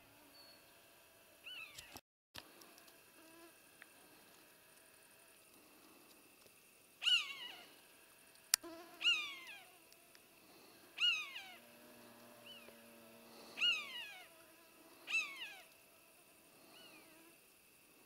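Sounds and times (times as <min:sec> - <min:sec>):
deer call peeps: 0:07.0 - 0:07.8, 0:09.0 - 0:09.7, 0:11.0 - 0:12.8, 0:13.6 - 0:14.3.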